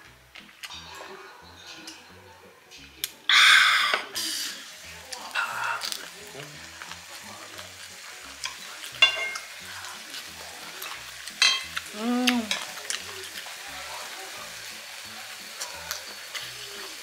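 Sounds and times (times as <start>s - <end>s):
food sizzling in a pan: 2.9s - 17.0s
metal utensil clinking on pan: 8.4s - 9.5s, 10.8s - 11.7s.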